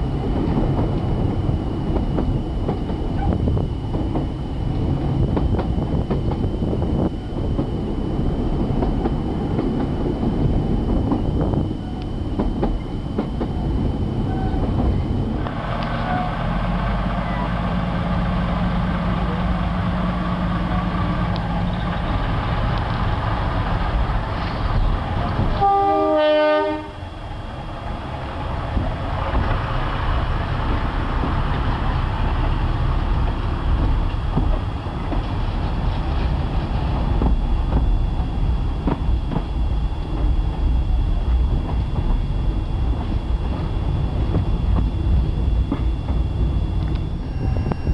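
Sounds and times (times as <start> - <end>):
diesel locomotive engine hum: 0.0 - 47.9
train running noise: 0.0 - 47.9
train horn blast: 15.5 - 17.8, 19.5 - 21.9, 25.4 - 27.2.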